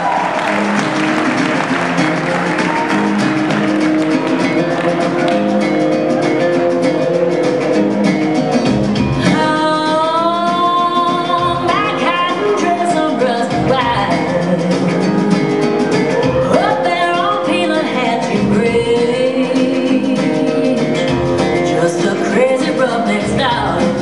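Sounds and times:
guitar: 0:00.0 - 0:24.0
steady drum beat: 0:00.0 - 0:24.0
person singing: 0:09.1 - 0:24.0.

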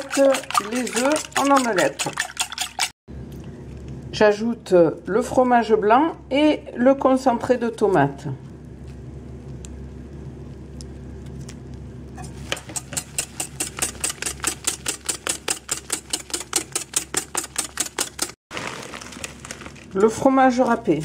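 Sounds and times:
whisk beating batter in plastic bowl: 0:00.0 - 0:02.9, 0:12.4 - 0:18.4.

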